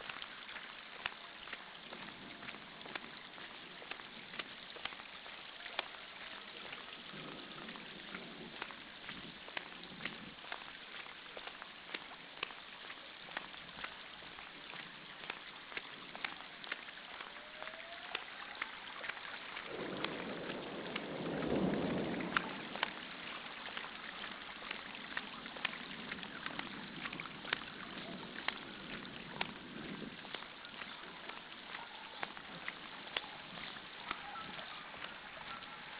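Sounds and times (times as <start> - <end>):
heavy rain pattering: 0.0 - 35.9
thunder rumbling: 6.8 - 8.7, 19.5 - 30.2.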